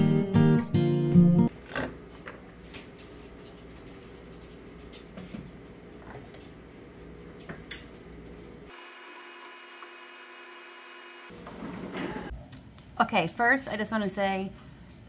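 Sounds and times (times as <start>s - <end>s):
faint kitchen hum: 1.5s - 9.5s, 11.3s - 15.0s.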